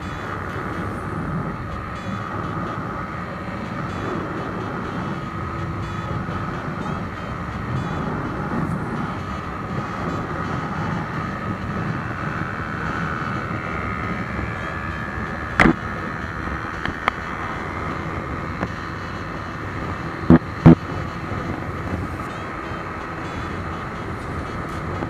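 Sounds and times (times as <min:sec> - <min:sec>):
motorcycle engine at high speed: 0:00.0 - 0:25.0
wind rushing past microphone: 0:00.0 - 0:25.0.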